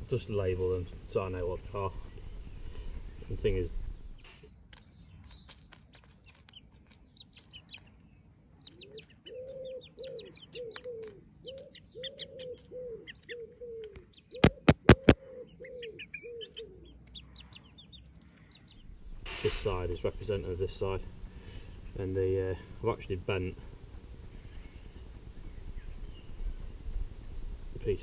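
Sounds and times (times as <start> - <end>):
hens chirping: 0.4 - 28.0
low repeated hen calls: 9.3 - 17.8.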